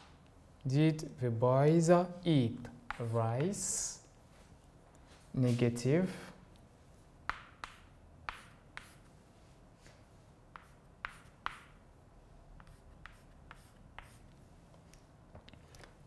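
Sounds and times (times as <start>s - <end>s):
chalk tapping on blackboard: 2.9s - 3.7s, 7.2s - 9.1s, 10.5s - 11.8s, 12.6s - 14.3s.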